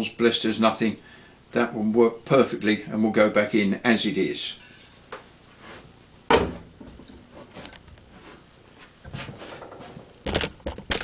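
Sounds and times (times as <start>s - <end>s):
metal cover clunking on workbench: 6.3s - 6.6s.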